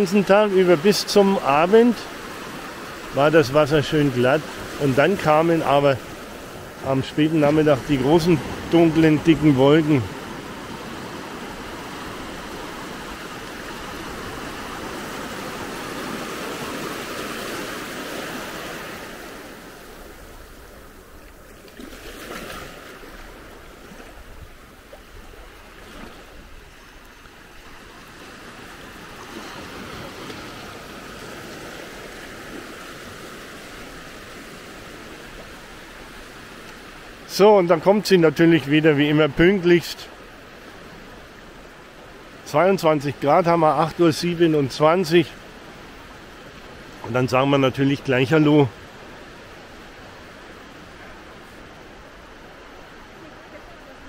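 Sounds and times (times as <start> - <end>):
small waves breaking on shore: 0.0 - 54.0.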